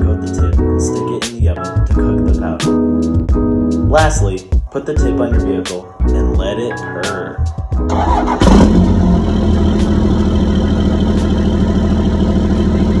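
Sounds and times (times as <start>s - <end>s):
background music: 0.0s - 13.0s
truck engine idling: 7.9s - 13.0s.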